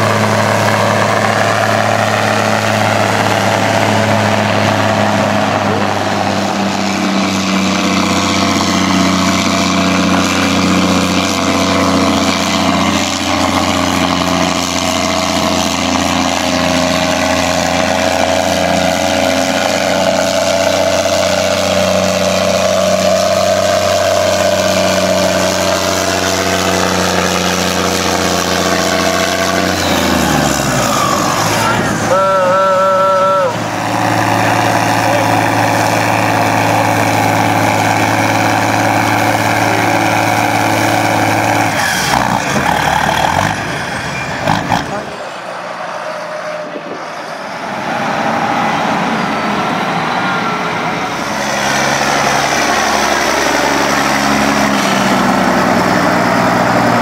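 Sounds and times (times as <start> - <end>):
diesel tractor engines at full load: 0.0 - 57.0
wavering high horn tone: 31.1 - 33.8.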